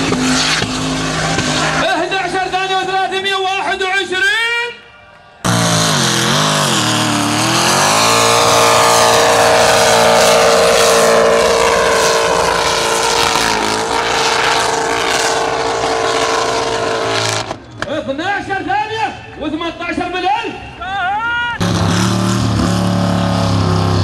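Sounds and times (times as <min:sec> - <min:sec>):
v eight engine revving at full throttle: 0:00.0 - 0:02.8, 0:05.4 - 0:17.6, 0:21.6 - 0:24.0.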